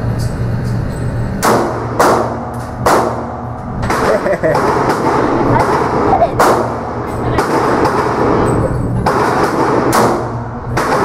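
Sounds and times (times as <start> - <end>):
pistol shot: 1.4 - 8.4, 9.0 - 11.0.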